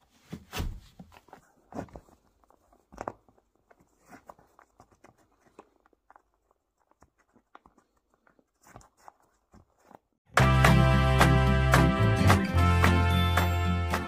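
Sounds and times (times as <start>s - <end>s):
soft rustles: 0.0s - 10.2s.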